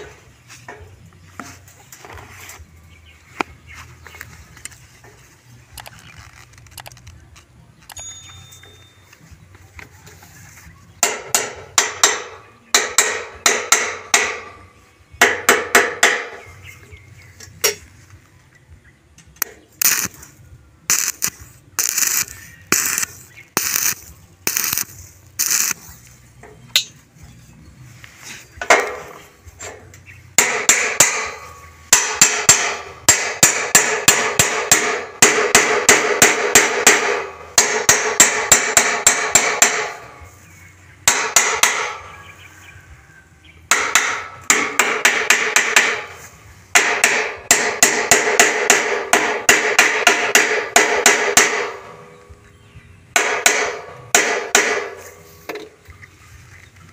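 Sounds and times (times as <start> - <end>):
hammer striking steel tubing: 11.0 - 14.6, 15.2 - 16.5, 26.7 - 27.0, 28.6 - 40.2, 41.0 - 42.1, 43.7 - 51.9, 53.2 - 55.6.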